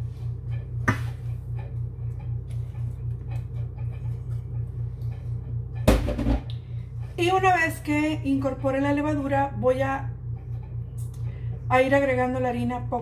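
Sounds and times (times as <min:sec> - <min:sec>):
hands mixing dough: 0:00.0 - 0:05.9
steady low hum: 0:00.0 - 0:13.0.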